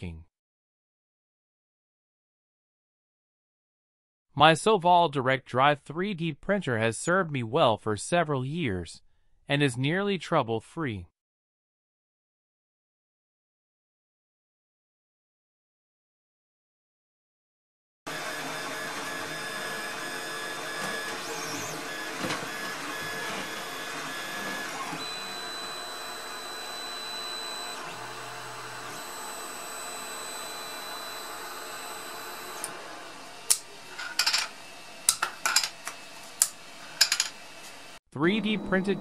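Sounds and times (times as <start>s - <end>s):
stepper motors whining: 18.1s - 33.9s, 38.2s - 39.0s.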